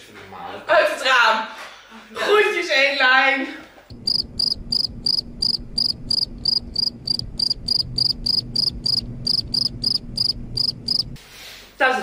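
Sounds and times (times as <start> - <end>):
cricket chirping: 3.9 - 11.2
faint low hum: 3.9 - 12.0.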